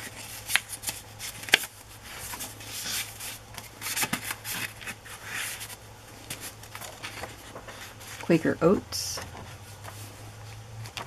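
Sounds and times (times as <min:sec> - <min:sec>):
paper rustling and sliding: 0:00.0 - 0:08.4, 0:09.2 - 0:11.0.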